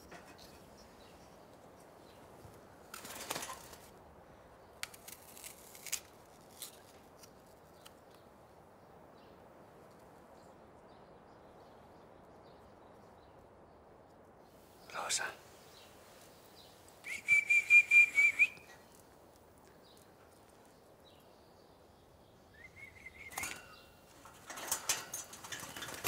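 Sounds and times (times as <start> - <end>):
small clicks and rustles: 1.5 - 4.0, 4.8 - 8.2, 23.2 - 26.0
bird fluttering wings: 2.8 - 4.0, 23.2 - 26.0.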